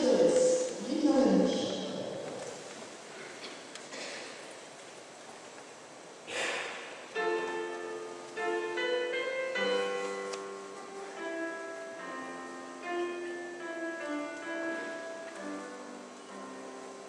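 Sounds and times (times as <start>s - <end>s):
noisy rustle: 0.0s - 17.0s
piano playing slow chords: 6.8s - 17.0s.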